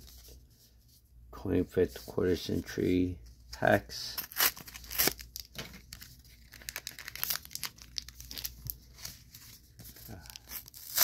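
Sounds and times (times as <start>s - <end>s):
foil wrappers crinkling: 4.2s - 11.0s.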